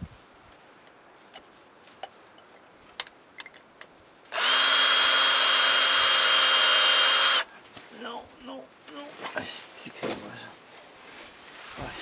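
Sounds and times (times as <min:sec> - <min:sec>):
cordless drill drilling into metal: 0:04.3 - 0:07.5.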